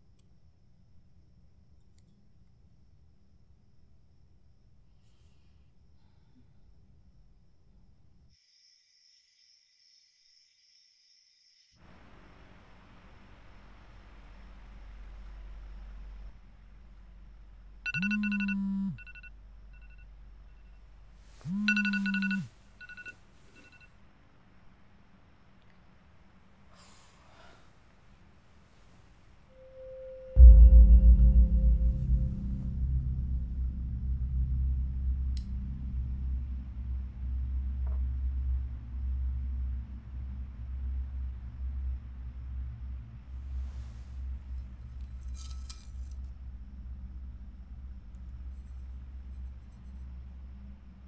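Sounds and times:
low buzz: 0:13.4 - 0:23.0, 0:29.5 - 0:43.0
phone alarm ringing tone: 0:17.9 - 0:19.9, 0:21.5 - 0:23.9
soft short beeps: 0:17.9 - 0:20.8, 0:21.4 - 0:23.9
low rumbling drone: 0:29.5 - 0:45.3, 0:46.1 - 0:51.0.

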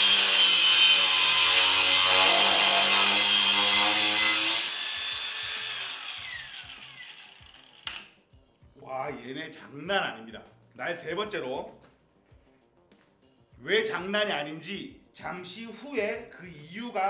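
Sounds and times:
angle grinder cutting steel: 0:00.0 - 0:08.1.

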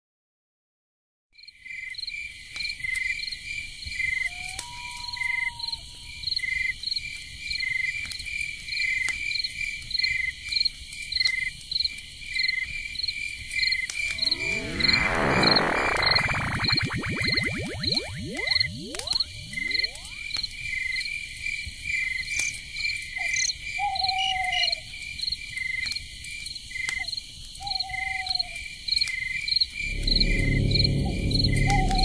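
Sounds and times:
short gliding whistle: 0:14.0 - 0:20.3, 0:29.8 - 0:32.0
dense sweeping synth tone: 0:14.0 - 0:20.4, 0:29.8 - 0:32.0.

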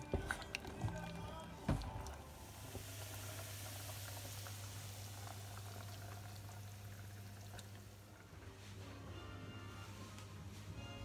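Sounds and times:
dumplings sizzling in butter: 0:02.3 - 0:08.1.

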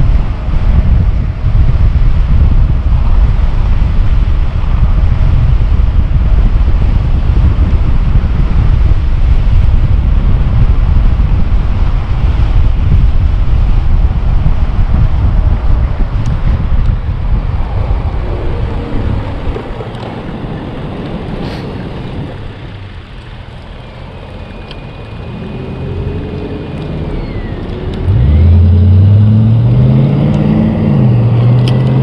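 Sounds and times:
wind buffeting microphone: 0:00.0 - 0:32.0.

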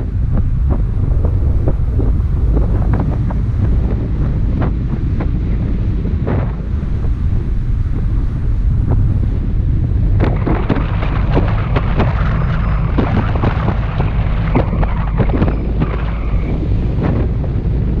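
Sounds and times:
sharp crackles and ticks: 0:00.0 - 0:05.6, 0:10.1 - 0:18.0
wind rumble on microphone: 0:00.0 - 0:18.0.

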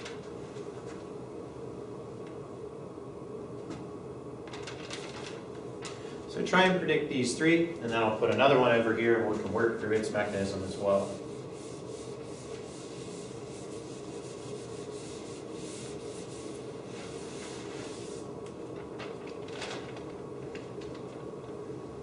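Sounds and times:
eraser wiping whiteboard: 0:09.6 - 0:18.3.

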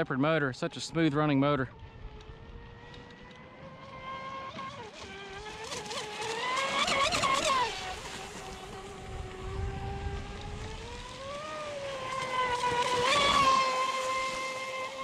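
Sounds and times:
rc speedboat motor whine: 0:00.0 - 0:15.0
water spray splashing: 0:10.6 - 0:15.0.

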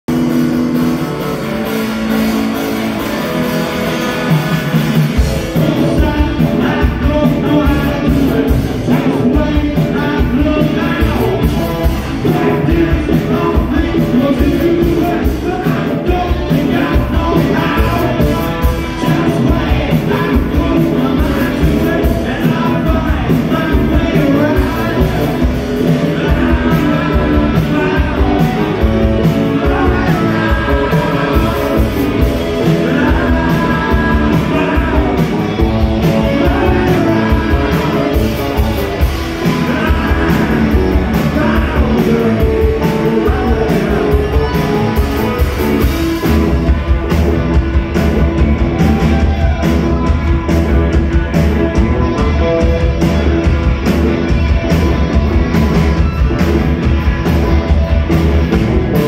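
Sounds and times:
drums and bass: 0:00.0 - 0:59.0
electric guitar: 0:00.0 - 0:59.0
person singing: 0:04.0 - 0:47.1.

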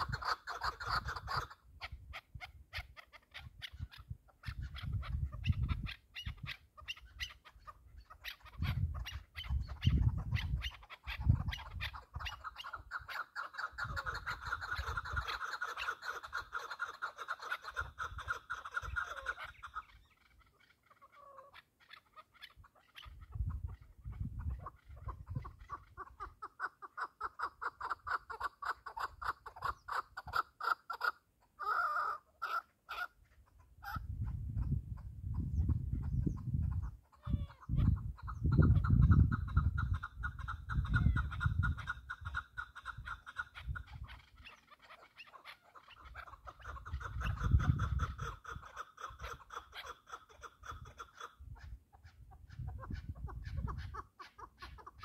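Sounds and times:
partridge clucking call: 0:00.0 - 0:55.0
wind buffeting microphone: 0:03.4 - 0:07.2, 0:07.8 - 0:12.4, 0:23.0 - 0:26.2, 0:33.8 - 0:44.3, 0:46.6 - 0:48.7, 0:50.6 - 0:54.0.

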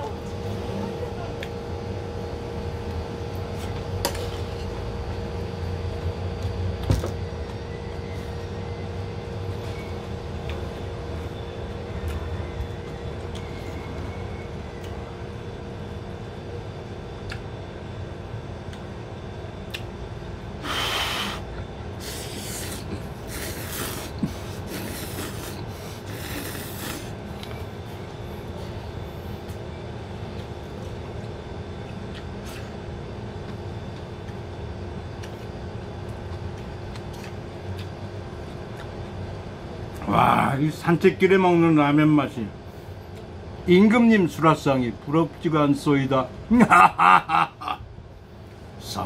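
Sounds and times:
low room hum: 0:00.0 - 0:49.0
noodles slurped: 0:21.0 - 0:27.6.

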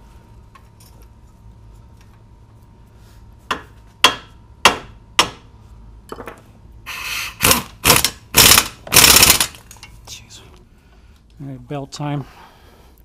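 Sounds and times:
impact wrench bursts: 0:06.9 - 0:09.6.

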